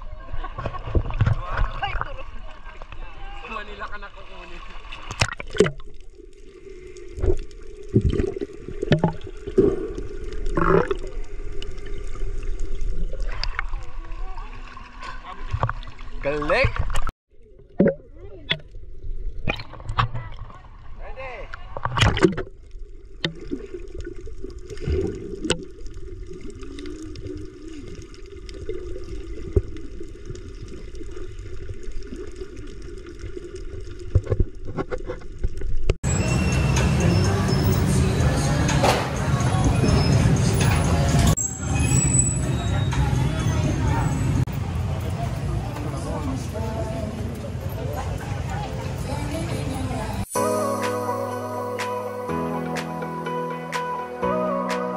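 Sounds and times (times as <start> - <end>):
sea water splashing: 0.4 - 35.9.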